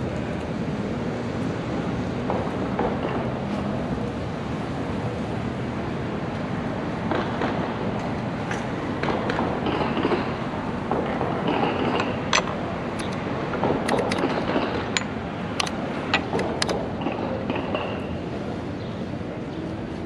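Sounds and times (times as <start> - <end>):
outdoor background noise: 0.0 - 20.0
chess clock buttons clicking: 15.6 - 16.7.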